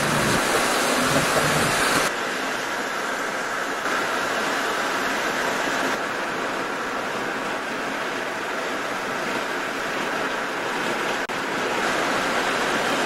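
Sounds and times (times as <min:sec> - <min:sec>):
road and engine noise: 0:00.0 - 0:13.0.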